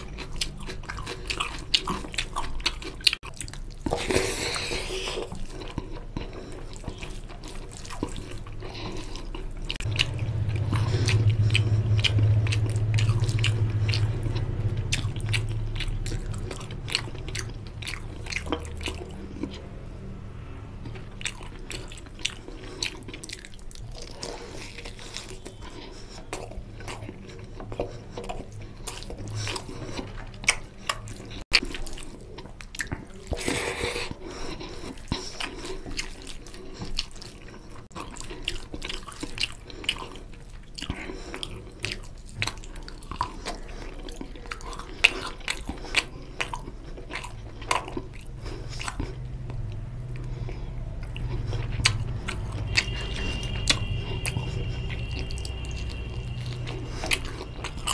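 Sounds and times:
wet chewing clicks and smacks: 0.0s - 20.1s, 20.8s - 57.9s
low rumble: 9.8s - 21.3s.

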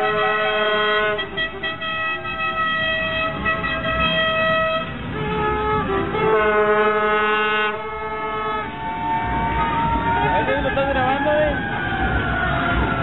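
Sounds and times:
car horns sounding: 0.0s - 11.2s.

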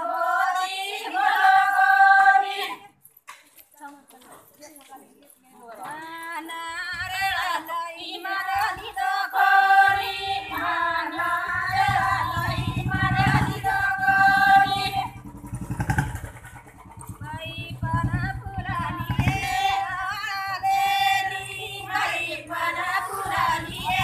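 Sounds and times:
women singing together: 0.0s - 3.0s, 5.7s - 15.4s, 16.6s - 24.0s
low rapid steady throbbing: 11.2s - 24.0s.

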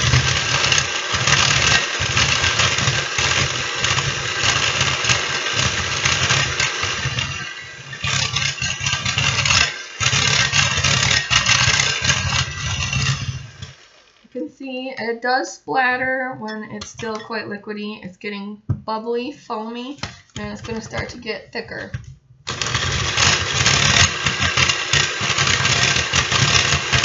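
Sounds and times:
electric hand mixer whisking cream: 0.0s - 14.3s, 22.5s - 27.0s.

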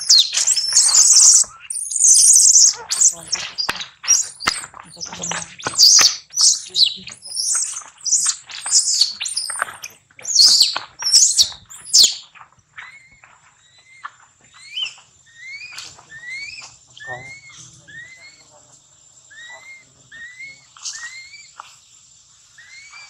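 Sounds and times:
macaque screaming: 0.0s - 12.1s
macaque squeaking: 0.0s - 18.5s, 19.3s - 21.7s, 22.6s - 23.0s.

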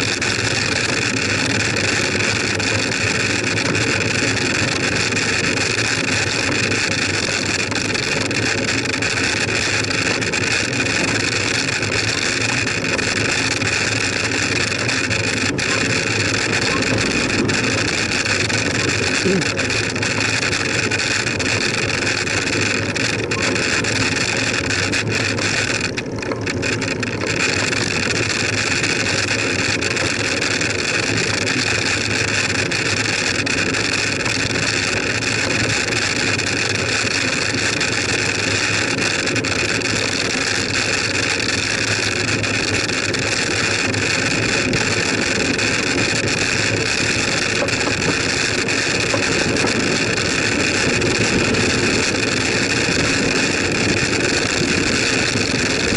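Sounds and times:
bicycle tyres on tarmac: 0.0s - 55.9s
wind noise: 15.5s - 19.4s.

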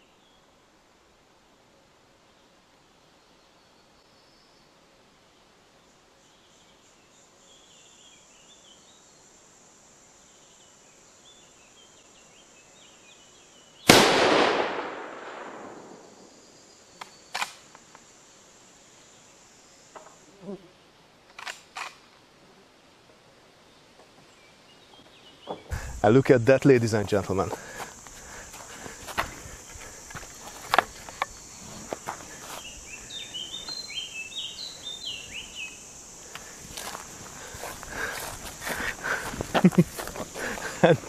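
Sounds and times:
rifle shot with echo: 13.9s - 16.2s.

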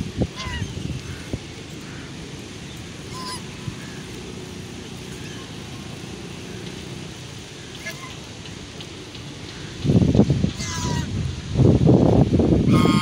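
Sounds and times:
geese honking: 0.3s - 2.2s, 3.0s - 4.2s, 4.9s - 8.6s, 10.6s - 11.1s, 12.7s - 13.0s.

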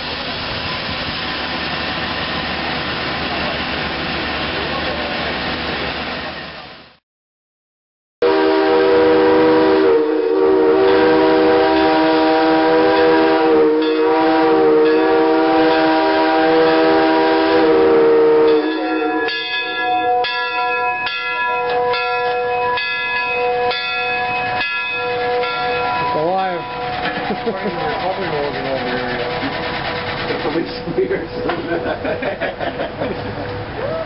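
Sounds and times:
steam locomotive whistle: 8.2s - 20.3s.

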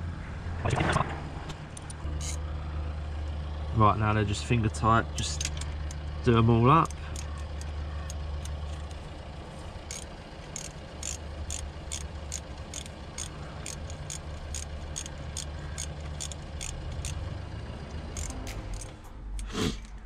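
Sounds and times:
steady low hum: 0.0s - 20.0s
ratchet wrench clicking: 1.8s - 2.4s, 6.8s - 8.9s, 9.8s - 17.3s, 17.9s - 19.5s.

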